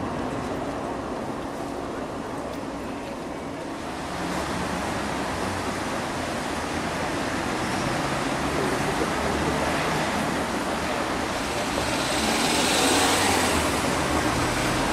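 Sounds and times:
cars passing: 0:03.6 - 0:14.9.

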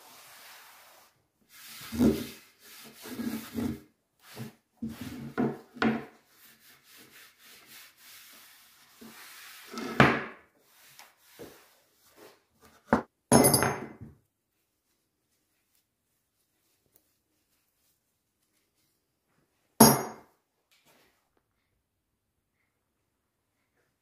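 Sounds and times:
cloth rubbing on wooden board: 0:00.0 - 0:05.4, 0:06.2 - 0:09.8.

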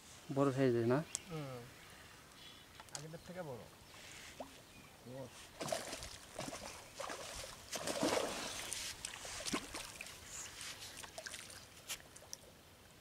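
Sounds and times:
water splashing and sloshing: 0:05.5 - 0:12.5.

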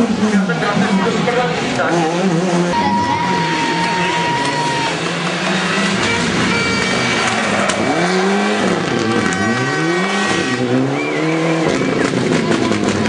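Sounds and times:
rally car engine accelerating: 0:00.0 - 0:13.0.

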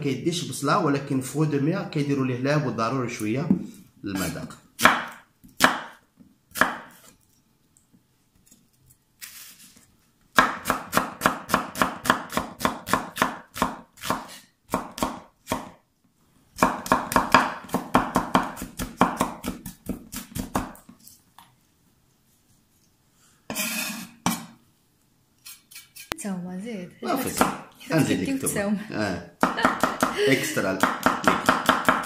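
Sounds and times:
knife chopping on wooden board: 0:04.8 - 0:07.1, 0:10.3 - 0:15.8, 0:16.6 - 0:20.9, 0:29.4 - 0:30.2, 0:30.8 - 0:32.0.

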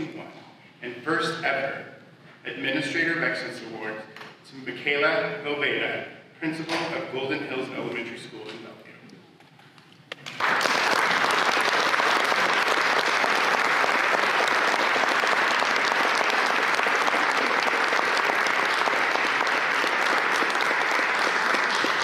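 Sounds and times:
audience applause: 0:10.2 - 0:22.0.

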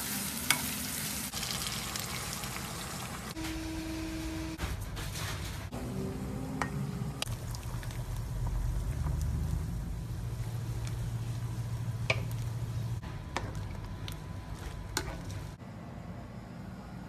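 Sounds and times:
broth bubbling in a wok: 0:06.6 - 0:15.6.

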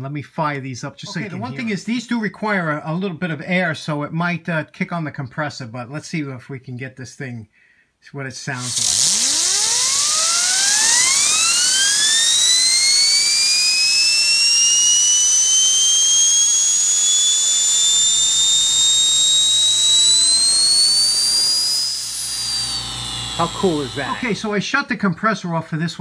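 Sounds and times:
turbine whine rising in pitch: 0:08.6 - 0:24.6.

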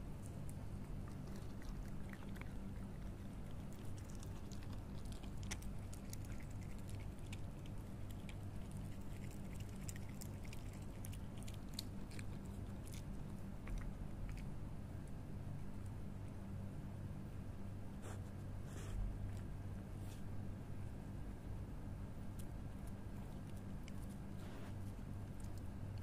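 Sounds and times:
animal chewing: 0:00.0 - 0:15.9, 0:22.3 - 0:26.0
steady low hum: 0:00.0 - 0:26.0.

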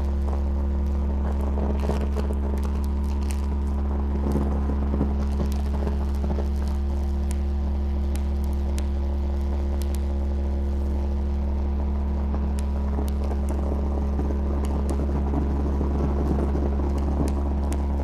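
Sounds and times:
aircraft cabin propeller drone: 0:00.0 - 0:18.0
rough rumble: 0:11.4 - 0:18.0.

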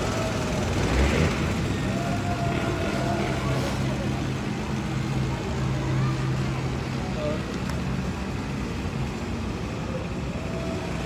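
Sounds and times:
quad bike engine whining: 0:00.0 - 0:04.2.

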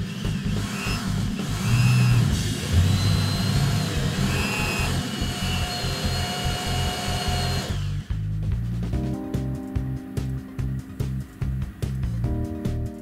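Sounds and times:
electric drill boring into steel: 0:00.0 - 0:08.2
background music: 0:00.0 - 0:13.0.

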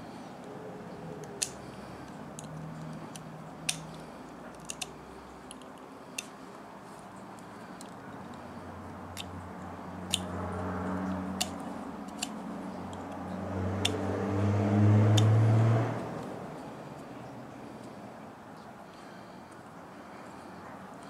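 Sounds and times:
sharp clicks: 0:01.2 - 0:06.4, 0:11.4 - 0:14.1
vehicle engine passing by: 0:08.6 - 0:17.8.

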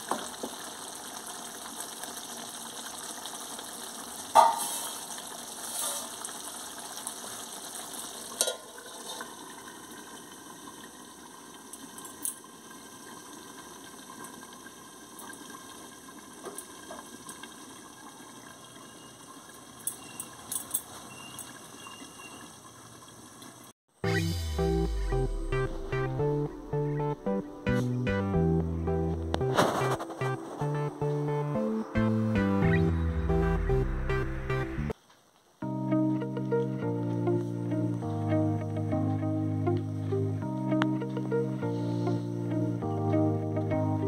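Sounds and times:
curry simmering and bubbling: 0:00.0 - 0:23.7.

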